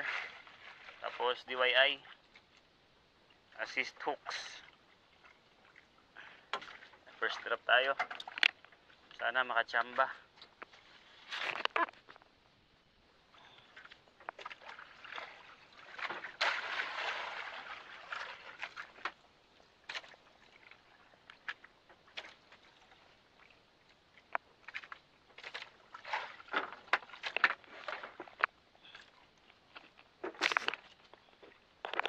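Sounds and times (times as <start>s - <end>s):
water splashing: 0.0s - 2.7s, 3.4s - 9.2s, 13.4s - 29.4s
water sloshing against boat: 0.0s - 32.0s.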